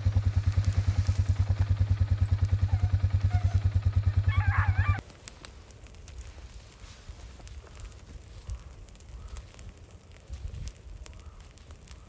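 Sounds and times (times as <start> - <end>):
quad engine idling: 0.0 - 5.0.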